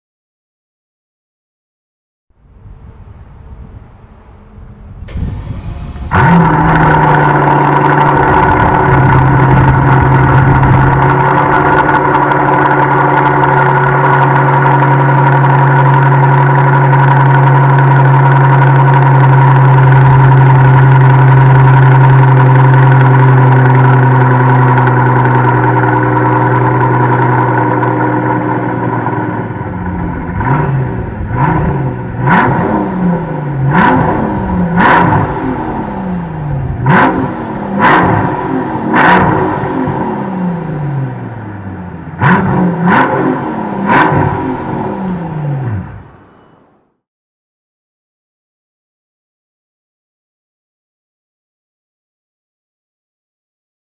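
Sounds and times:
car engine starting and idling: 2.4s - 46.9s
engine revving: 4.9s - 46.4s.

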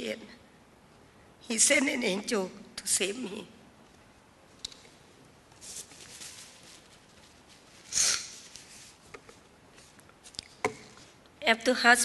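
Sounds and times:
tissue paper rustling: 5.6s - 9.0s
woman sniffing: 7.9s - 8.5s.

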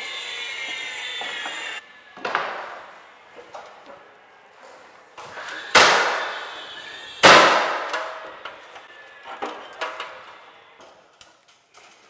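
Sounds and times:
nail gun firing: 5.4s - 6.4s, 7.2s - 8.3s.

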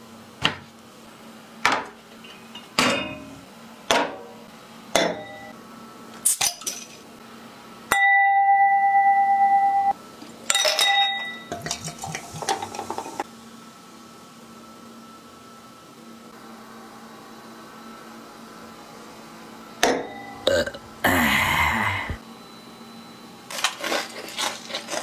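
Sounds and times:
glass clinks: 10.5s - 11.6s
loud steady high tone: 20.1s - 22.2s.

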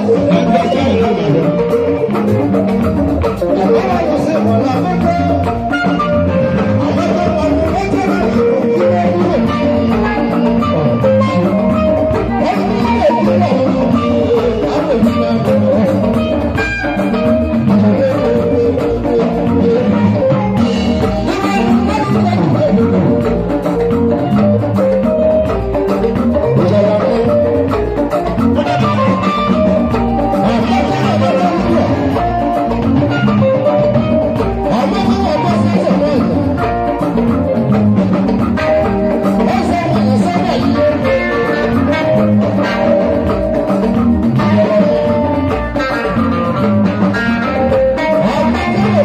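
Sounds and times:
drum kit beat: 0.0s - 49.0s
keyboard: 0.0s - 49.0s
live band music: 0.0s - 49.0s.

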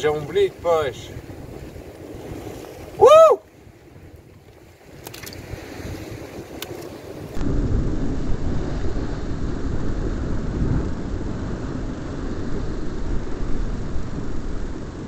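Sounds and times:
sea washing against rocks: 0.0s - 7.4s
wind buffeting microphone: 0.0s - 15.0s.

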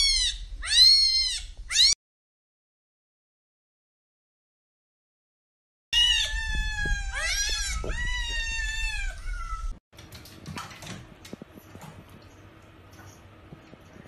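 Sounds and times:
cat meowing: 0.0s - 2.0s, 6.0s - 9.8s
water splashing in plastic basin: 10.0s - 13.8s.

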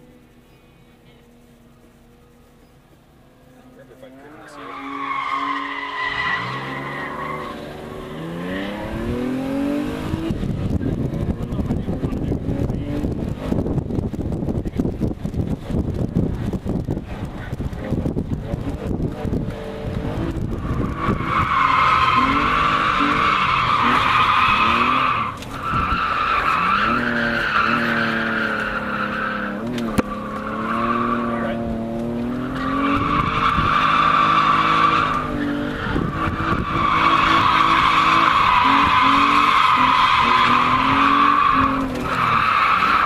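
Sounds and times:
car engine revving: 1.0s - 43.0s
tyres squealing: 4.3s - 8.1s, 20.6s - 31.6s, 32.4s - 43.0s.

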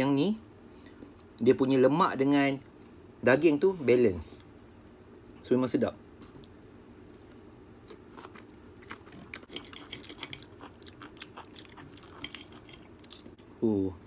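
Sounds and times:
person chewing food: 6.1s - 13.4s.

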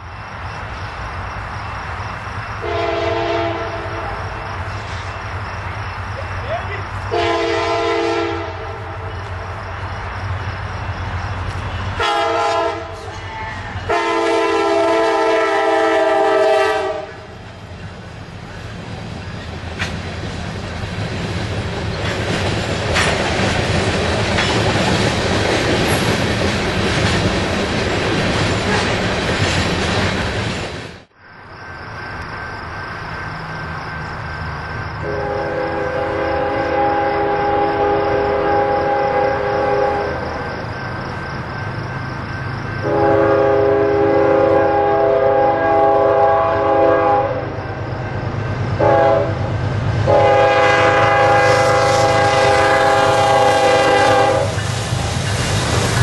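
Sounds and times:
chord of horn-like tones: 2.6s - 4.3s, 7.1s - 9.1s, 12.0s - 13.0s, 13.9s - 17.2s, 35.0s - 40.2s, 50.1s - 54.5s
locomotive air horn: 2.6s - 4.3s, 7.1s - 9.1s, 12.0s - 17.3s, 35.0s - 40.5s, 42.8s - 47.6s, 48.8s - 54.6s
train wheels clattering: 17.4s - 31.0s, 49.6s - 56.0s.

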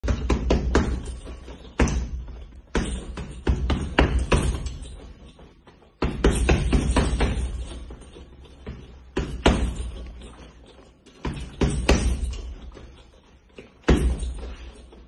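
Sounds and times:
fists striking heavy bag: 0.0s - 5.0s, 6.0s - 10.2s, 11.2s - 12.5s, 13.8s - 14.4s.

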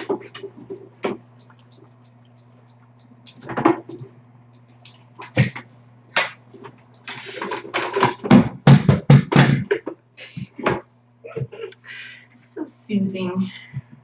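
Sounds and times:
cat chewing wet food: 0.0s - 8.0s
steady low hum: 0.0s - 14.0s.

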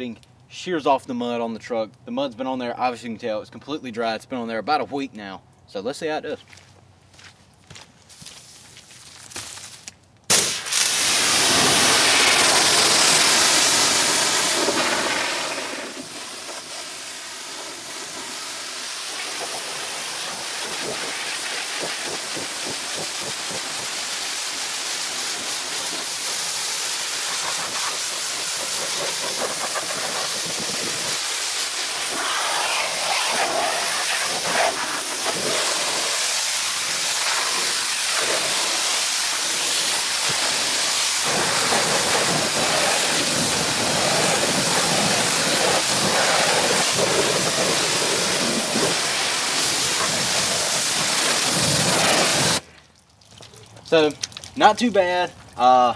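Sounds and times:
pressure washer spraying water: 10.3s - 52.6s.

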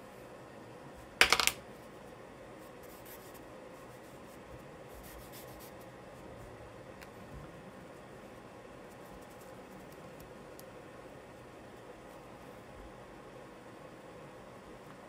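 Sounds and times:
charcoal scratching on paper: 2.6s - 5.9s.

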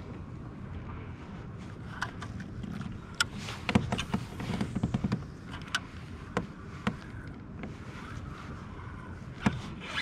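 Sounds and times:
wind rumble on microphone: 0.0s - 10.0s.

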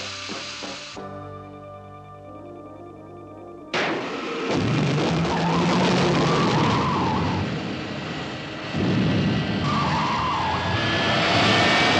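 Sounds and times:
car engine revving: 4.0s - 11.9s
tire squeals: 5.1s - 7.8s, 9.4s - 11.9s.

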